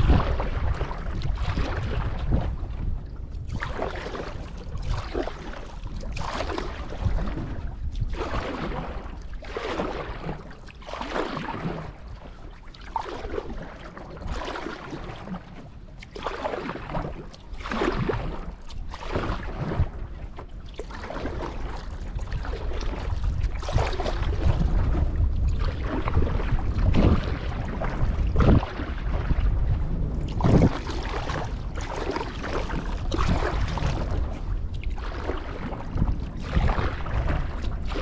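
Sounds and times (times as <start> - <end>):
paddle splashing through water: 0.0 - 38.0
wind rumble on microphone: 0.0 - 38.0.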